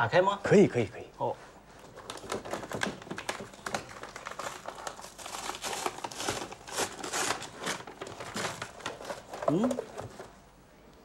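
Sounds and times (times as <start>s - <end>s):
wrapping paper crinkling: 1.8s - 10.4s.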